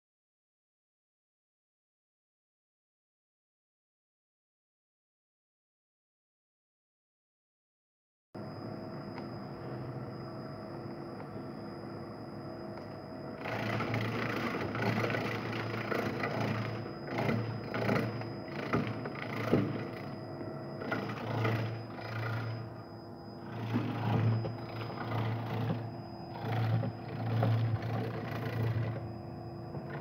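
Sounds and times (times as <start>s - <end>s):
slicer motor hum and whine: 8.4s - 30.0s.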